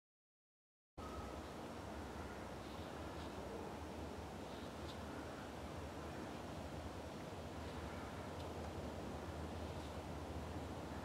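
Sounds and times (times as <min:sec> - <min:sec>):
faint high chirp: 0:01.0 - 0:01.5
soft hiss: 0:01.0 - 0:11.0.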